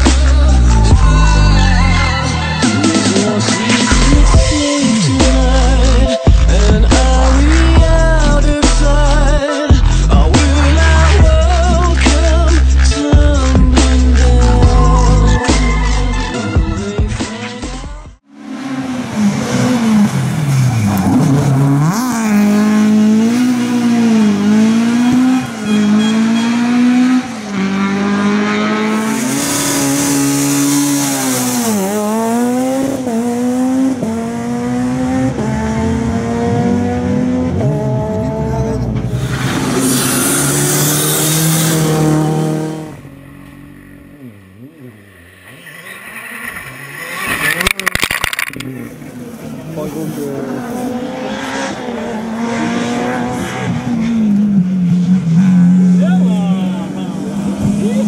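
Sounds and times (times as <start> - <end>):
rally car engines revving: 18.2 - 58.0.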